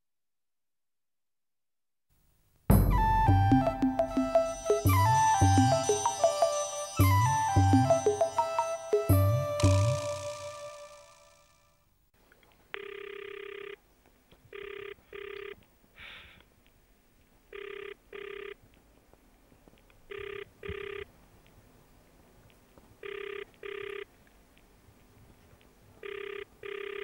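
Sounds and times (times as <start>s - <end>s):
telephone ringing electronically: 12.8s - 13.8s, 14.5s - 15.6s, 17.5s - 18.6s, 20.1s - 21.1s, 23.0s - 24.1s, 26.0s - 27.0s.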